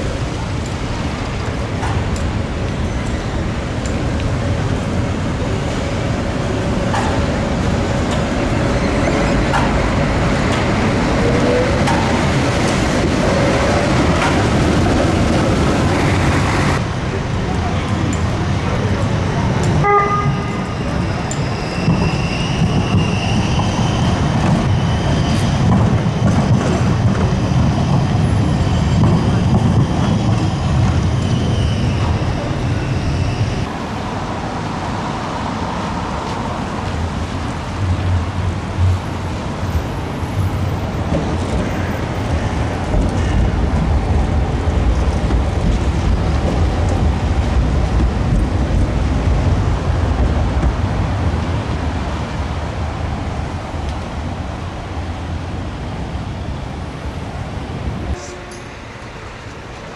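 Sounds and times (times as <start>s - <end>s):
street traffic on cobbles: 0.0s - 59.9s
tram rumbling: 0.0s - 59.9s
tram wheels squealing: 6.7s - 16.8s, 17.9s - 33.7s, 39.6s - 43.9s.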